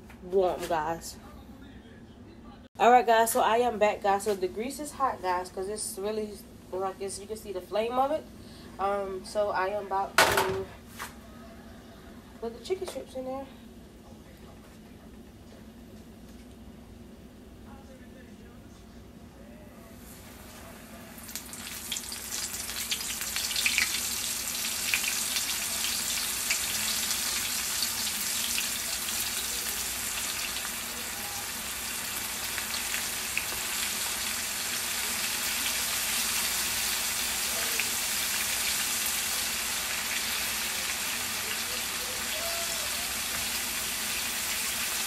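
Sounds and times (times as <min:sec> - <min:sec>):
chicken sizzling in hot oil: 0:21.0 - 0:45.0.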